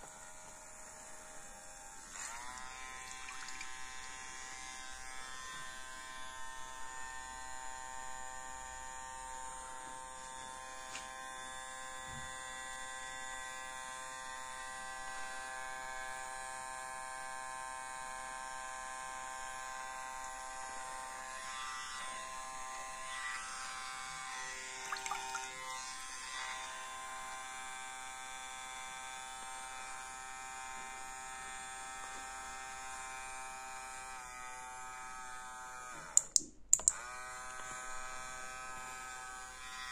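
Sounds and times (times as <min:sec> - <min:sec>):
small electric motor running: 0:00.0 - 0:36.2, 0:36.9 - 0:39.9.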